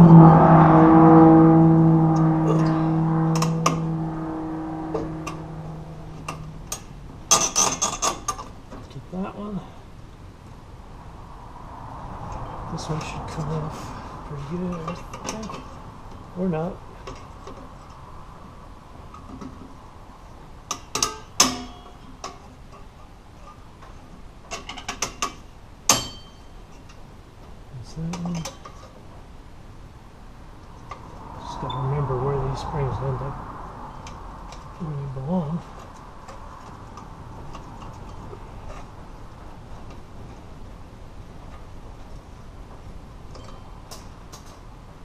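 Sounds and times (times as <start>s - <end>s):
metal brake part ringing: 0.0s - 8.4s, 25.9s - 26.6s.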